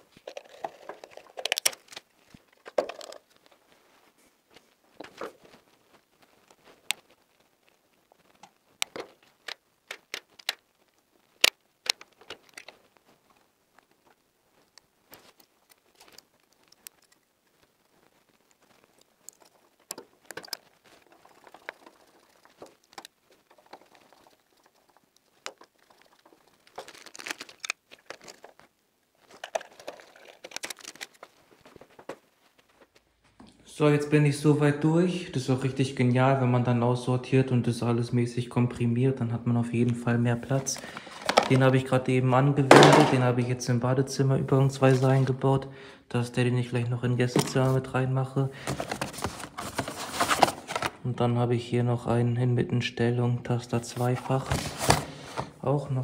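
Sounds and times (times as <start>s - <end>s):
rustling: 0.0s - 33.4s, 40.5s - 41.8s, 48.5s - 51.1s, 53.8s - 55.6s
plastic parts and screwdriver clicking: 0.2s - 3.5s, 8.4s - 10.7s, 11.4s - 12.8s, 19.0s - 31.3s, 40.7s - 41.6s.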